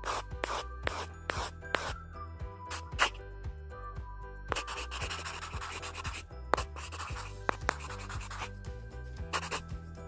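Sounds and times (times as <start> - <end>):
marker scratching on paper: 0.0 - 2.0, 2.7 - 3.2, 4.5 - 8.6, 9.3 - 9.7
background music with bass line: 6.2 - 10.0.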